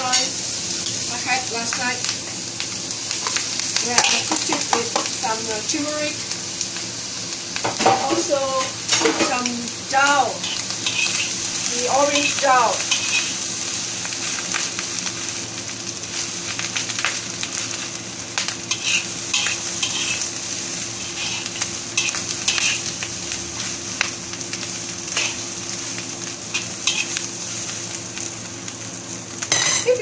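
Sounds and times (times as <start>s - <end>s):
food sizzling in a wok: 0.0s - 30.0s
spatula scraping and tapping wok: 4.0s - 5.2s, 10.4s - 11.4s, 12.1s - 13.4s, 18.4s - 20.3s, 21.0s - 22.9s, 25.1s - 25.4s, 26.5s - 27.2s
steady low hum: 7.1s - 30.0s.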